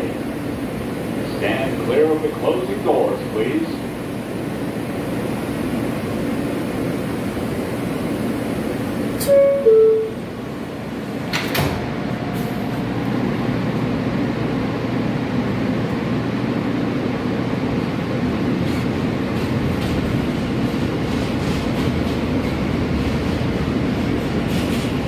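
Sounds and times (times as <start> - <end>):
subway ventilation running: 0.0 - 25.0
train pulling away: 7.4 - 13.6
two-note falling door chime: 9.2 - 10.2
sliding doors shutting: 11.2 - 12.7.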